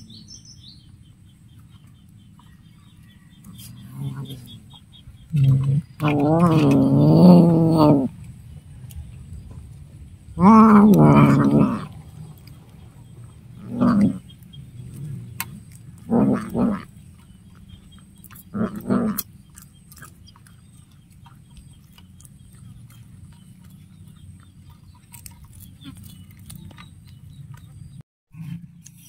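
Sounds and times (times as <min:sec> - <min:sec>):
cat calling: 0:10.4 - 0:12.0
cat chewing: 0:10.9 - 0:27.9.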